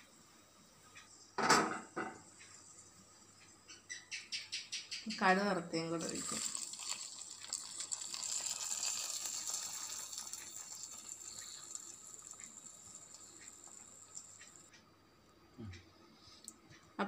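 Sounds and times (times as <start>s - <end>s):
spices sizzling and crackling in oil: 6.0s - 14.7s.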